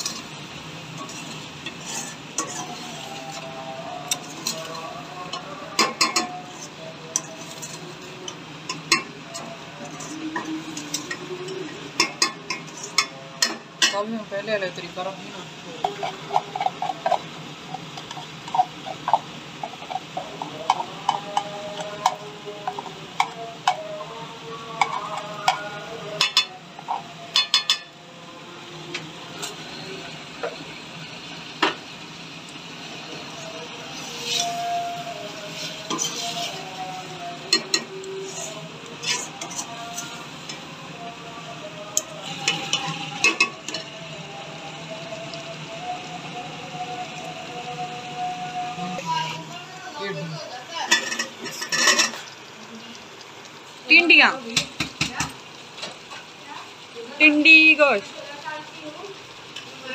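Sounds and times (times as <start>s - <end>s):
ladle scraping metal pot: 0.0s - 14.0s, 15.8s - 23.8s, 33.9s - 40.6s, 50.8s - 52.3s
gravy bubbling and sizzling: 0.0s - 59.9s.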